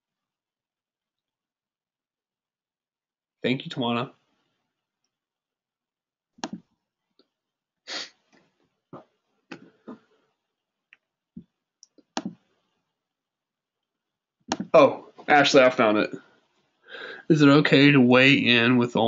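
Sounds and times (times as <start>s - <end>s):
mouse and keyboard clicks: 6.4s - 6.6s, 11.8s - 12.4s, 14.5s - 14.7s.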